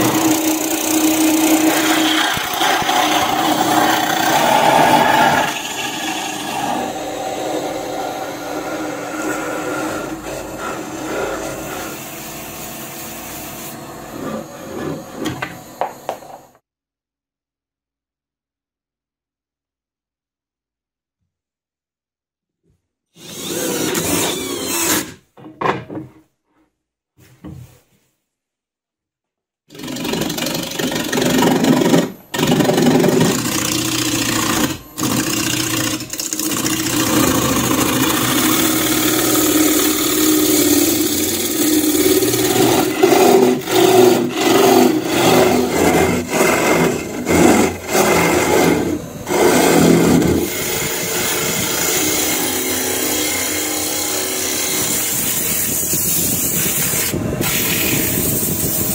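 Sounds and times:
gouge cutting wood: 0.0s - 16.5s, 23.2s - 25.2s, 29.7s - 58.9s
wood lathe spinning: 0.0s - 16.6s, 23.2s - 25.1s, 29.7s - 58.9s
cordless drill driving screws: 23.2s - 25.2s.

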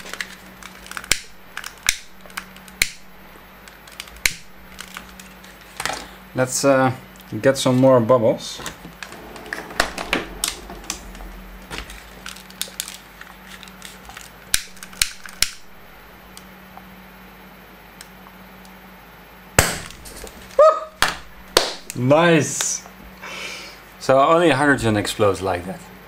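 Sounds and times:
hydrogen explosion bang: 8.8s - 12.6s, 19.6s - 20.6s.

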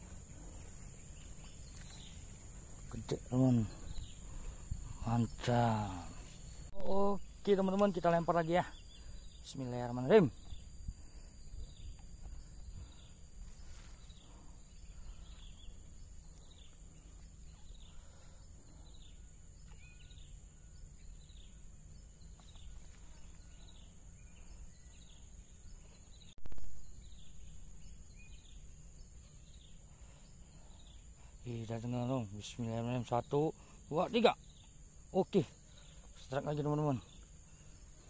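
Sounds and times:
high insect drone: 0.0s - 38.0s.

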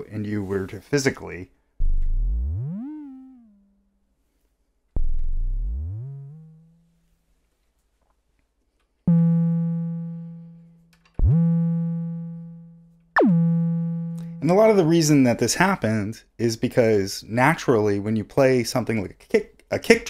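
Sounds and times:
synthesizer decaying percussive notes: 11.2s - 14.9s.

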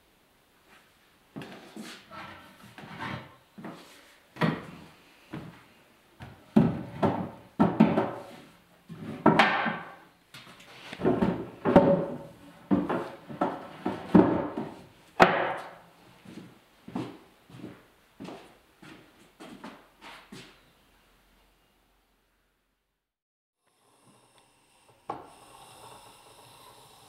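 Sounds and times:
wooden boards knocking on workbench: 6.6s - 8.2s, 9.2s - 10.0s, 11.0s - 15.8s.

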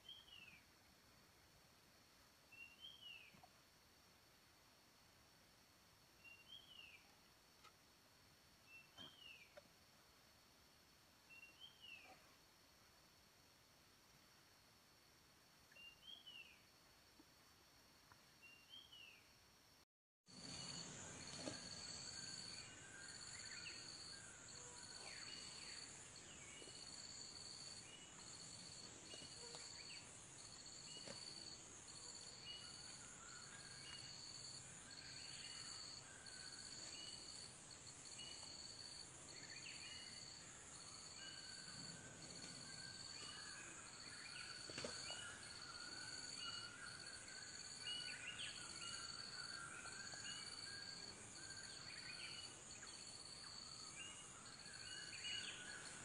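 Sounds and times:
insect chorus buzzing: 20.3s - 56.0s.

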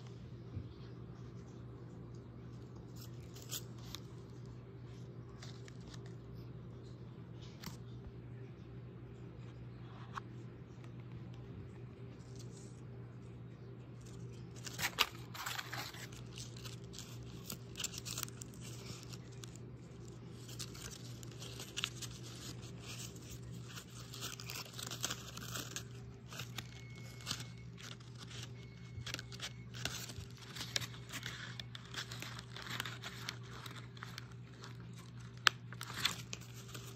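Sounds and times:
steady low hum: 0.0s - 36.9s
paper rustling and crinkling: 0.8s - 6.5s, 13.9s - 36.9s.

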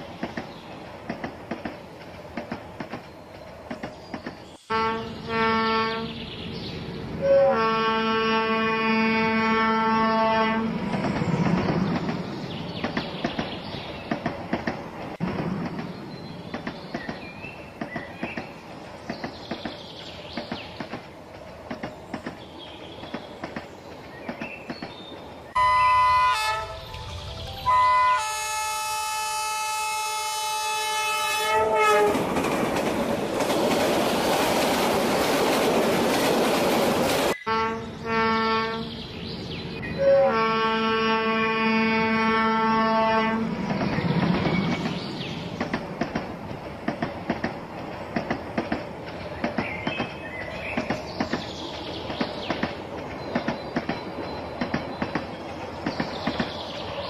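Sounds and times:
multi-tone train horn: 4.7s - 6.2s, 7.2s - 10.8s, 25.5s - 27.0s, 27.6s - 32.3s, 37.4s - 38.9s, 40.0s - 43.6s.

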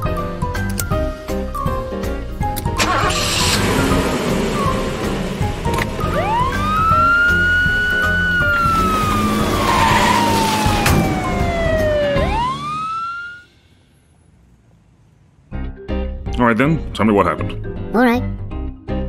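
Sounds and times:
background music: 0.0s - 13.0s, 15.5s - 19.0s
cartoon police siren wailing: 6.0s - 13.5s.

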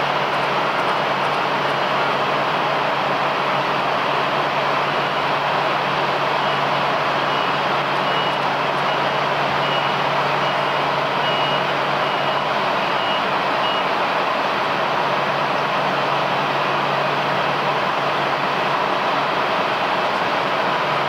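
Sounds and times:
jet engines idling: 0.0s - 21.0s
reversing beeper: 6.4s - 13.9s.

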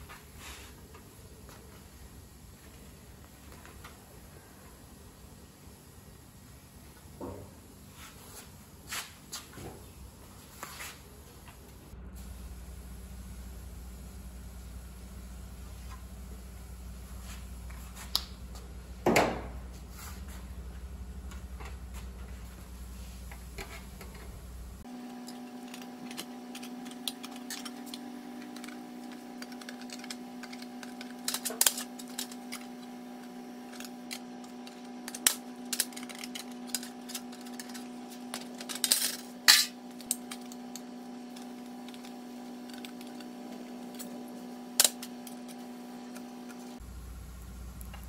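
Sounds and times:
steady hum: 0.0s - 48.0s.

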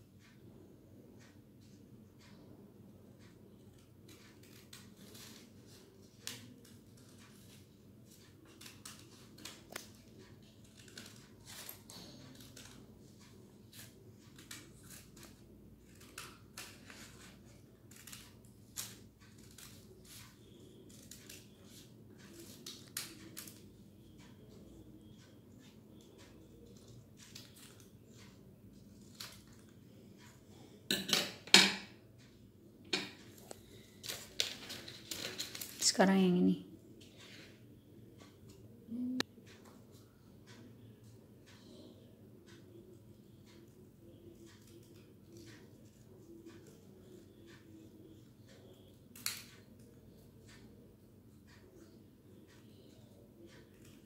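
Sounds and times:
scissors snipping paper: 3.7s - 23.7s.

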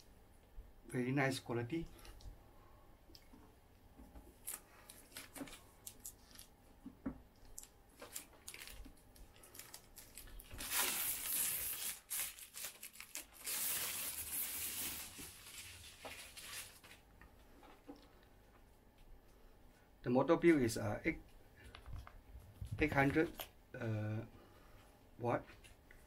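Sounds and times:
plastic wrap crinkling and tearing: 4.3s - 6.5s, 7.5s - 17.0s.

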